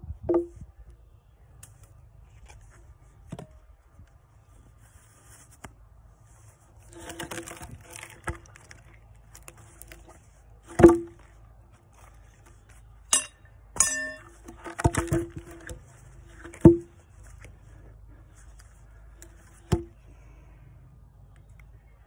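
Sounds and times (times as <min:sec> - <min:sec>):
wood pieces rattling and scraping: 0:06.9 - 0:08.9.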